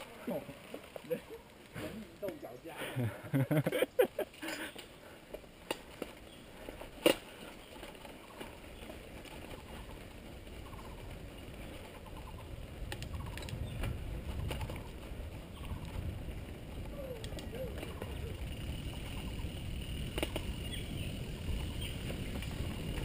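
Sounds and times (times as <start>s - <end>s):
low rumble of tyres and wind: 4.2s - 23.0s.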